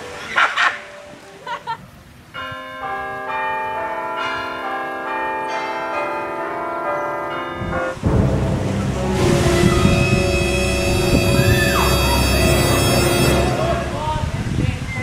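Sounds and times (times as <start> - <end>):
bell-like chime music: 8.8 - 14.4.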